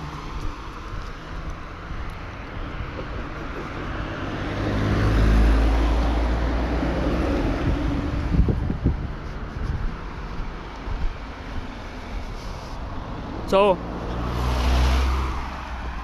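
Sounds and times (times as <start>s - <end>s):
outdoor noise rush: 0.0s - 16.0s
vehicle engine passing: 2.8s - 10.8s, 13.0s - 16.0s.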